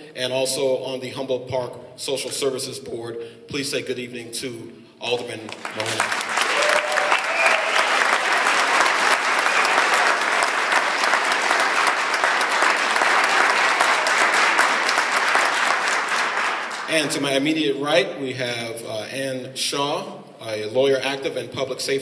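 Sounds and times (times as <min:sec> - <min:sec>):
audience applauding: 0:05.5 - 0:17.2.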